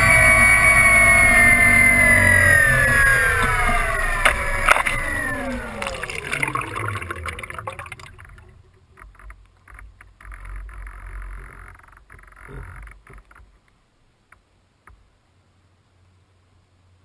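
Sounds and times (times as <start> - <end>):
electric motors winding down: 0.0 - 8.8
water splashing against a hull: 2.8 - 13.6.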